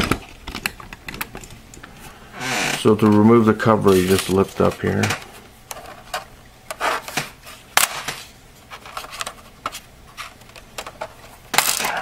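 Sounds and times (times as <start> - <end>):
plastic cover clicking and snapping: 0.0 - 1.9, 10.4 - 12.0
plastic cover scraping: 2.3 - 12.0.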